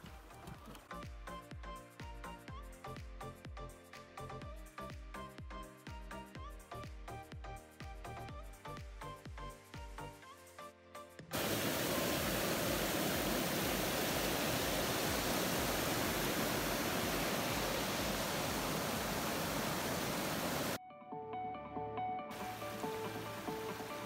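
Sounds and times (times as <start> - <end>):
background music: 0.0 - 12.8, 15.1 - 24.0
loud steady rushing noise: 11.4 - 20.8.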